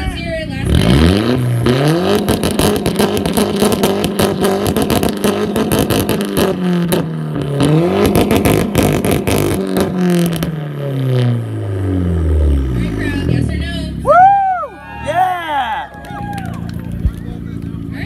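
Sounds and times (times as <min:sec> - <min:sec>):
car engine revving with crackle: 0:00.6 - 0:13.0.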